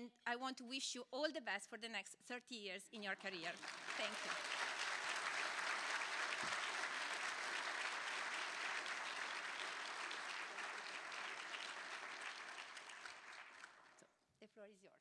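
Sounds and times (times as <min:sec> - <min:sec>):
audience applauding: 0:03.3 - 0:14.0.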